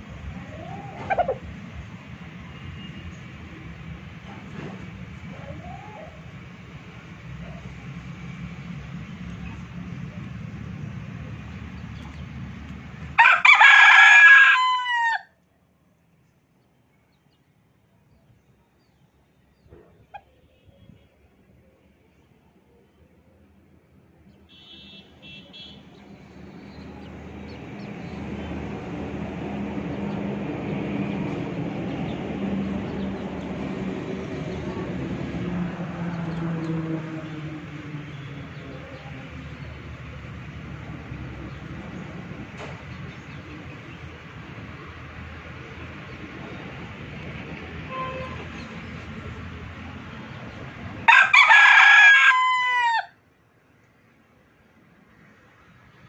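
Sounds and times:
rooster crowing: 0:13.2 - 0:15.3, 0:51.1 - 0:53.2.

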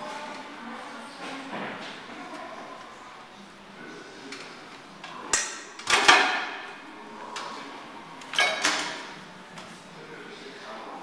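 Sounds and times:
exercise machine metal clanks: 0:05.1 - 0:06.8, 0:08.3 - 0:09.1.

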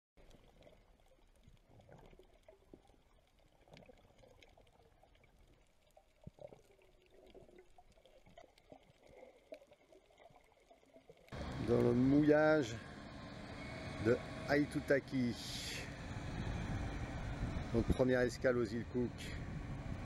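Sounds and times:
underwater bubbling and gurgling: 0:00.2 - 0:11.8.

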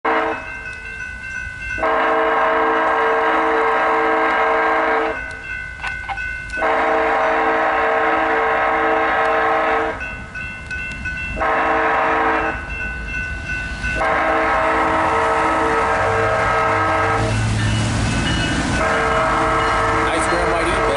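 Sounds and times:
locomotive air horn blasts: 0:00.0 - 0:00.5, 0:01.8 - 0:05.2, 0:06.6 - 0:10.0, 0:11.4 - 0:12.6, 0:14.0 - 0:17.5, 0:18.8 - 0:20.9
crossing warning bells ringing: 0:00.0 - 0:20.9.

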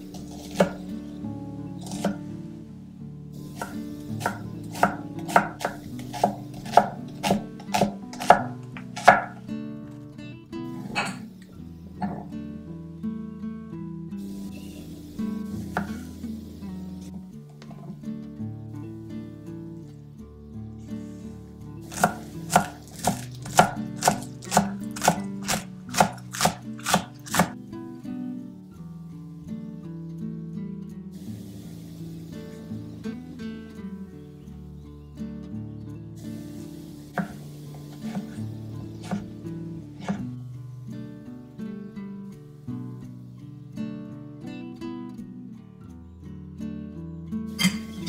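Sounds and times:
knife slicing onion on wooden board: 0:00.1 - 0:00.9, 0:01.8 - 0:02.2, 0:03.4 - 0:09.4, 0:10.8 - 0:11.3, 0:15.6 - 0:16.2, 0:21.8 - 0:27.6, 0:37.2 - 0:40.3
tomatoes rolling onto board: 0:03.4 - 0:10.0, 0:14.4 - 0:18.0, 0:37.2 - 0:40.4.

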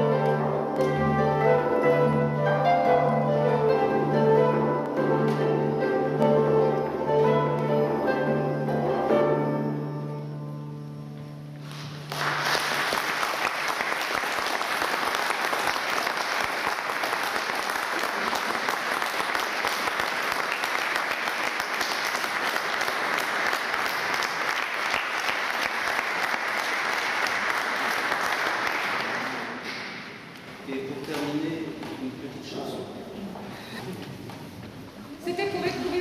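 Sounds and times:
harp notes: 0:00.0 - 0:12.0
audience applause: 0:11.9 - 0:30.2.

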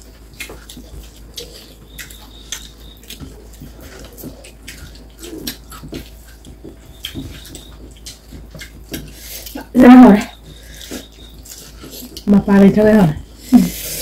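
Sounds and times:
chewing clicks and squelches: 0:00.0 - 0:12.3.

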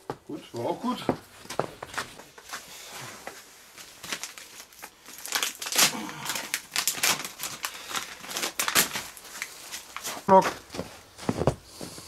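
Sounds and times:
plastic packaging crinkling: 0:03.3 - 0:10.3.

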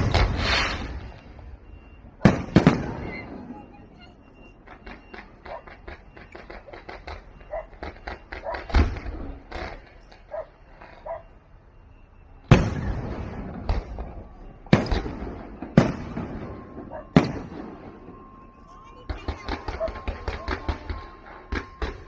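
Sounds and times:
firework shells booming: 0:00.0 - 0:01.2, 0:02.2 - 0:03.6, 0:12.4 - 0:22.0.

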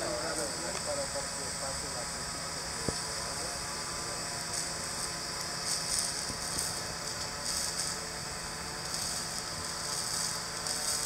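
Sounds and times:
drone rotors humming: 0:00.0 - 0:11.0
water spray hissing: 0:04.4 - 0:11.0.

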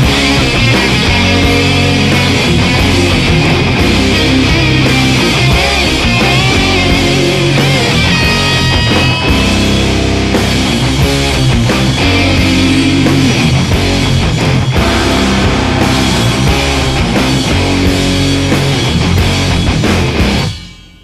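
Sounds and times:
rock drum beat: 0:00.0 - 0:20.7
distorted electric guitars: 0:00.0 - 0:21.0.

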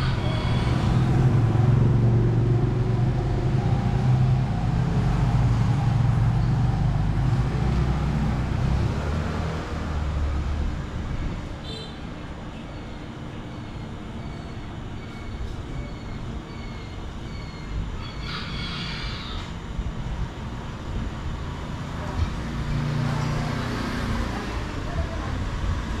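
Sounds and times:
vehicle engine rumbling: 0:00.0 - 0:18.2.

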